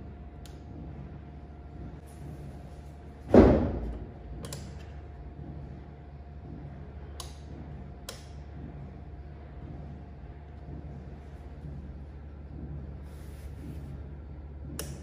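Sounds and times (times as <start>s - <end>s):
loud dull thud: 3.3s - 4.0s.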